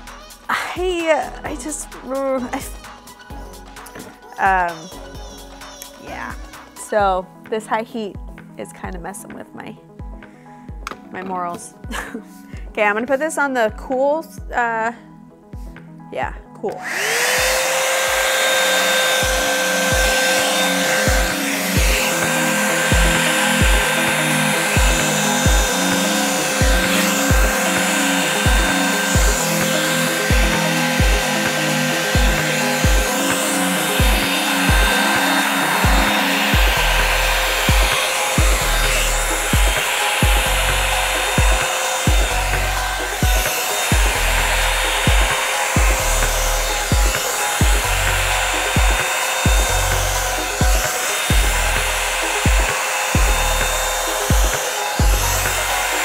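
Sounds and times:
hair dryer blowing air: 0.0s - 5.0s, 16.7s - 56.0s
background music with beat: 0.0s - 56.0s.

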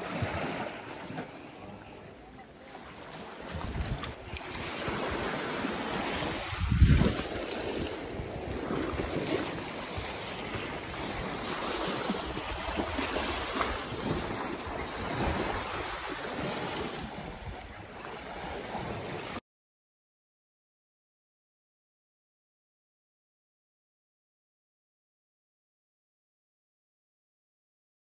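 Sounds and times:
small waves lapping on sand: 0.0s - 19.4s
wind buffeting microphone: 3.4s - 19.2s.

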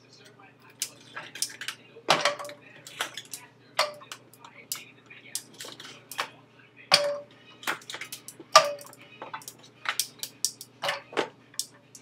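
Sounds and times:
pot ringing: 6.9s - 7.4s, 8.5s - 9.6s.

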